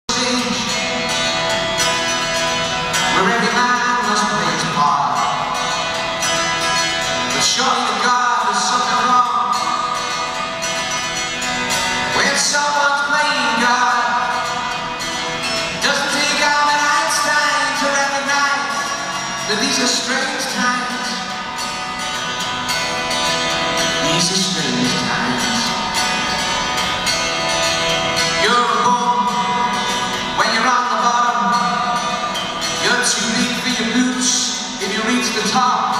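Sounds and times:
acoustic guitar: 0.0s - 35.9s
man singing into a microphone: 0.1s - 1.2s, 3.1s - 5.5s, 7.3s - 10.0s, 12.1s - 14.6s, 15.7s - 21.4s, 24.0s - 25.8s, 28.3s - 35.9s.

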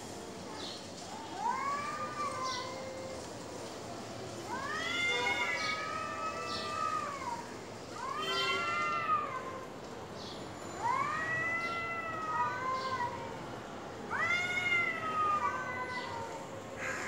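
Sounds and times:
cats yowling: 1.1s - 3.4s, 4.5s - 9.7s, 10.8s - 13.4s, 14.1s - 17.0s.

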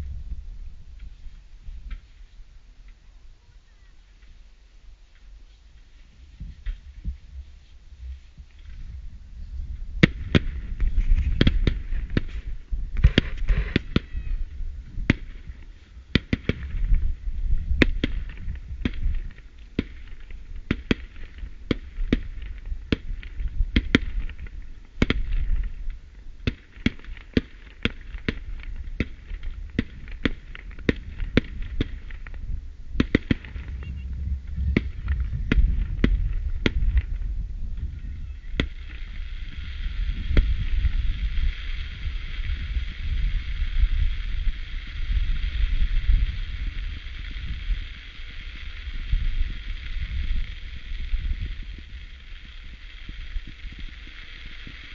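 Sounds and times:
low rumble: 0.0s - 3.5s, 28.5s - 54.0s
crackling firework stars: 0.0s - 54.9s
firework shells bursting: 10.0s - 54.9s.

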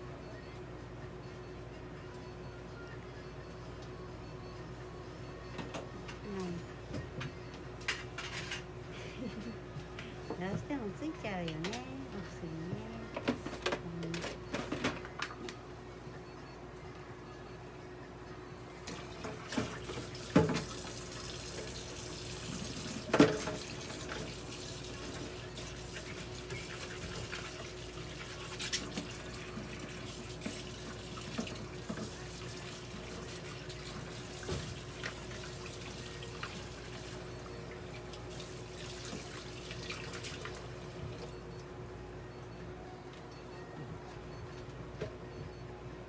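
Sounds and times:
water running: 18.8s - 41.3s.

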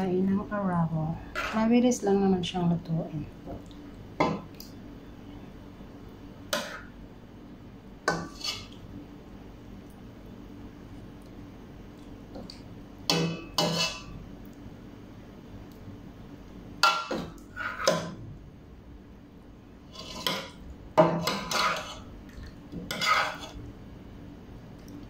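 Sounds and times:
metal ladle scraping a pot: 8.1s - 8.8s, 13.6s - 14.1s, 17.5s - 18.1s, 19.9s - 20.5s, 21.2s - 22.1s, 22.9s - 23.6s.

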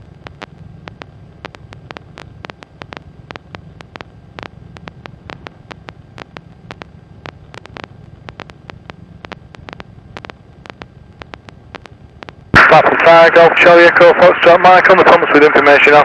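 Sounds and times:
sharp clicks: 0.4s - 12.6s.

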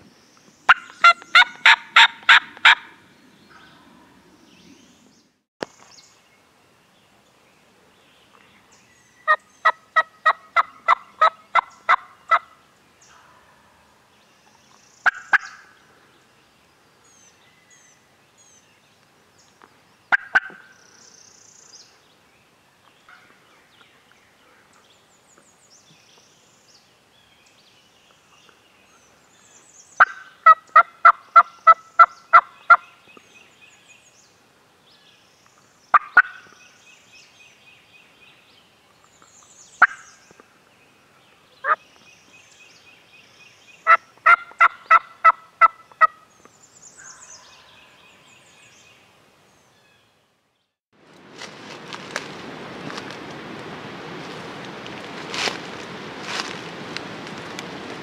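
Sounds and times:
turkey yelping: 0.7s - 2.9s, 9.6s - 12.4s
sharp turkey calls: 0.7s - 3.0s, 9.2s - 13.4s, 15.0s - 15.7s, 20.1s - 20.7s, 30.0s - 32.8s, 35.9s - 36.5s, 39.8s - 40.2s, 43.8s - 46.3s.

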